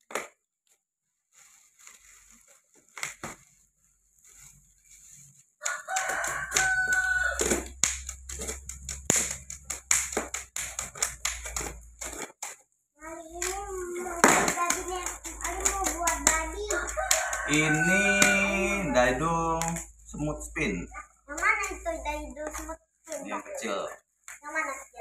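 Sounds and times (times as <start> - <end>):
rooster crowing: 5.6 - 7.7, 16.7 - 19.5.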